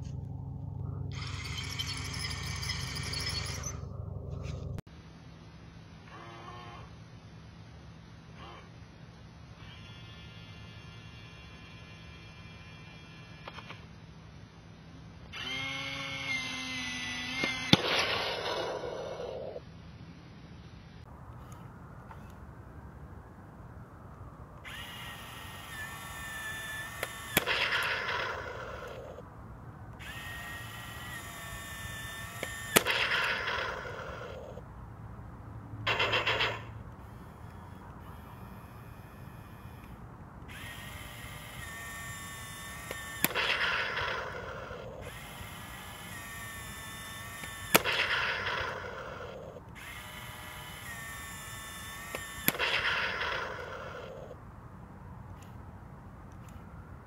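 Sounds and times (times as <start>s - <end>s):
electric motor whine: 0.0s - 4.8s, 9.5s - 14.0s, 15.2s - 19.6s, 24.2s - 29.3s, 29.9s - 34.7s, 35.9s - 54.4s
rattling noise: 0.0s - 4.8s, 35.8s - 45.8s
sharp crack: 17.3s - 19.6s, 26.4s - 29.2s, 31.5s - 34.6s, 35.8s - 38.1s, 42.6s - 45.1s, 47.4s - 49.4s, 52.1s - 54.4s.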